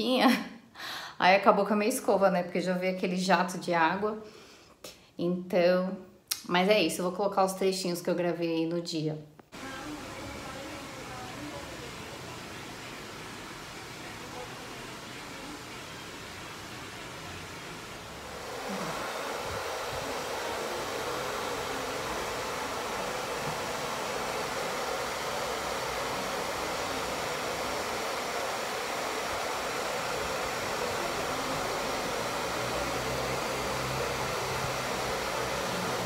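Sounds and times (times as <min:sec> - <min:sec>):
hair dryer blowing air: 0:09.5 - 0:36.0.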